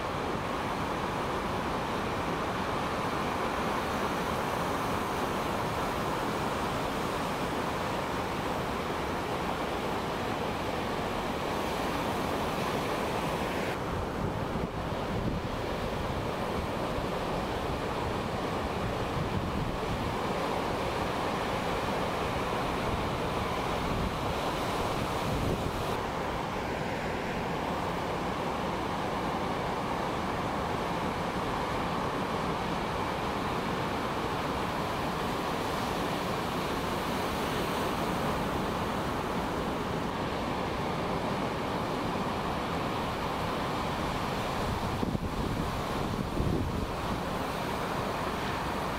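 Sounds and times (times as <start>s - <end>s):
ocean surf breaking: 2.9s - 48.9s
wind buffeting microphone: 44.6s - 47.6s.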